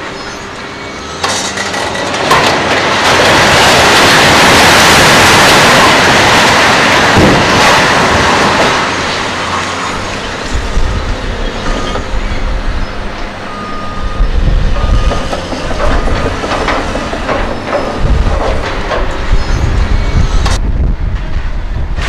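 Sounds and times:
diesel engines rumbling: 0:00.0 - 0:22.0
debris clanking and crashing: 0:01.2 - 0:20.6
high beep: 0:13.5 - 0:15.3.

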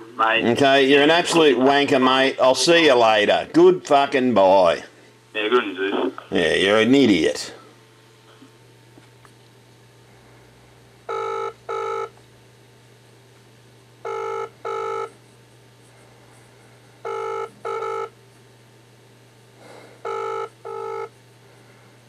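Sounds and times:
telephone ringback tone: 0:11.1 - 0:12.1, 0:14.0 - 0:15.1, 0:17.0 - 0:18.1, 0:20.0 - 0:21.1.

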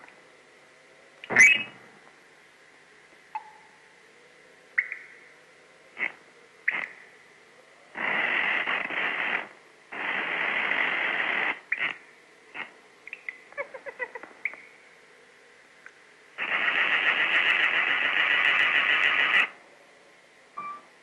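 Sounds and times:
raspy hissing noise: 0:04.0 - 0:19.9.

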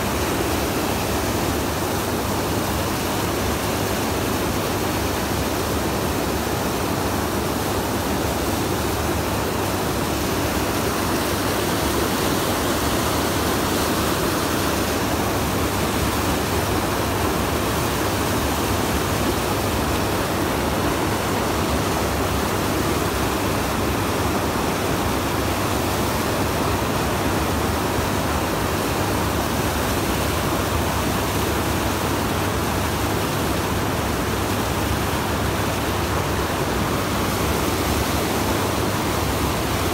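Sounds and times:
whitewater rushing: 0:00.0 - 0:39.9.

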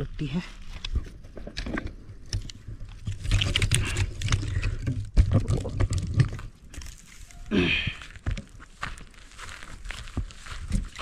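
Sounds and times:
pine cones clicking and rattling: 0:01.4 - 0:07.3.

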